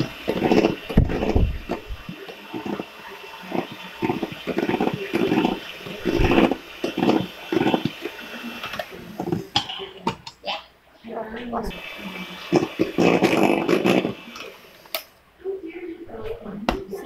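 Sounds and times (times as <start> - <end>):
hand mixer motor whine: 0.0 - 9.4, 11.7 - 14.7
beaters churning cream: 0.0 - 10.4, 11.5 - 15.1.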